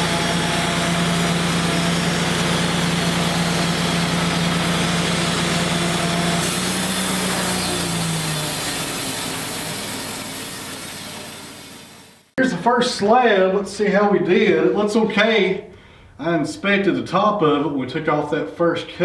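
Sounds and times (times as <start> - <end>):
band sawmill cutting log: 0.0 - 12.4.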